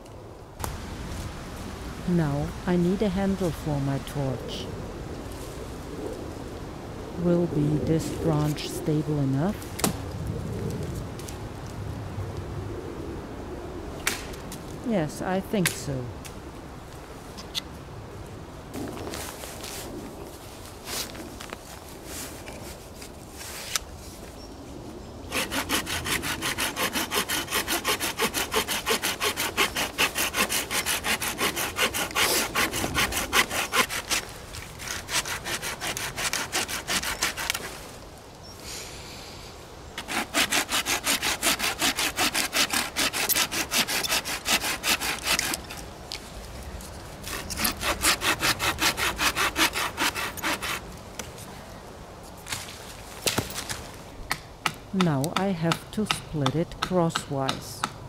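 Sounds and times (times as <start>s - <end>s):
hand saw cutting wood: 25.3s - 37.8s, 40.0s - 45.8s, 47.2s - 50.8s.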